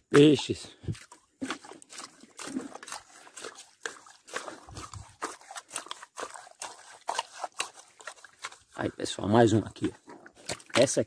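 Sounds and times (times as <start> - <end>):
wet mud squelches: 0.0 - 11.0
sharp clicks in mud: 0.9 - 8.9, 9.7 - 11.0.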